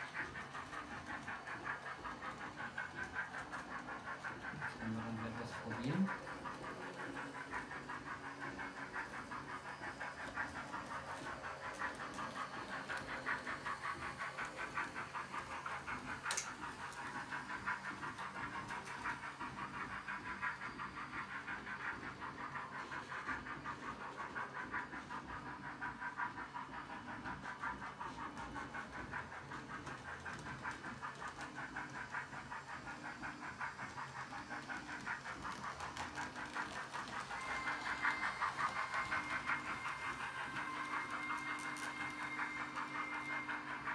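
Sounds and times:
model train steam chuffing: 0.0 - 43.9.

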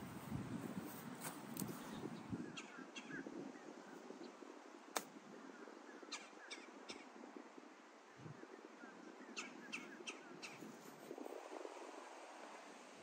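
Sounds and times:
birds calling: 1.7 - 4.3, 5.4 - 7.2, 8.1 - 10.7.

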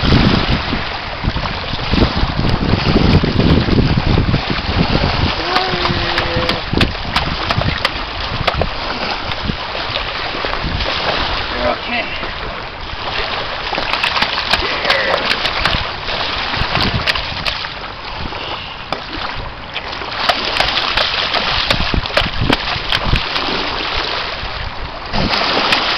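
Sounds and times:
small waves washing in: 0.0 - 25.9
water splashing and sloshing: 0.0 - 25.9
fish thrashing in water: 2.8 - 11.5, 12.9 - 18.3, 19.0 - 24.4, 25.1 - 25.9
sharp clicks and spatters: 13.8 - 15.9, 20.2 - 23.3.

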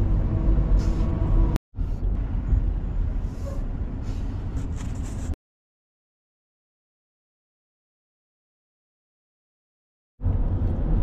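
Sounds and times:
road and engine rumble: 0.0 - 5.4, 10.2 - 11.0.

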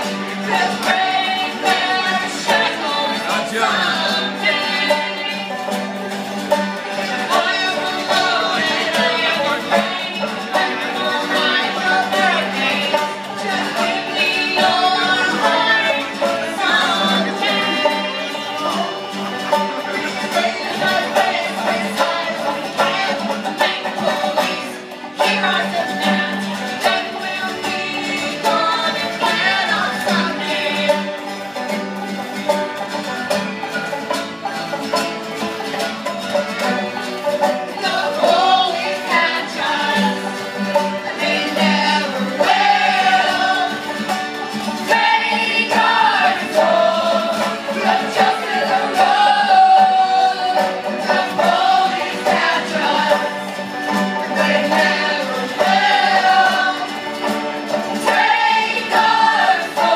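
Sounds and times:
person singing: 0.0 - 5.7, 7.2 - 31.2
plucked strings: 0.0 - 59.9.

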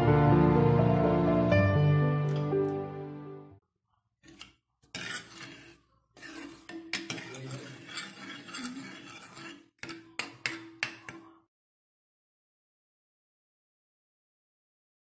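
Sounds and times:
spoon stirring in metal pan: 4.2 - 11.4.

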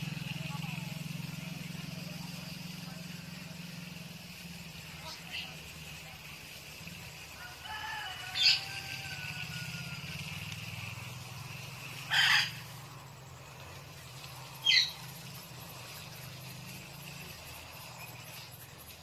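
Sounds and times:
parakeet screeching: 7.7 - 9.3, 12.1 - 12.7, 14.6 - 15.0.

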